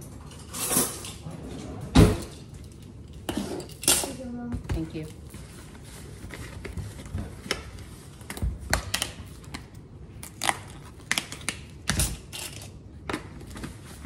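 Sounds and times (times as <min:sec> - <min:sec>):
seal tearing with crinkles: 0:07.4 - 0:14.0.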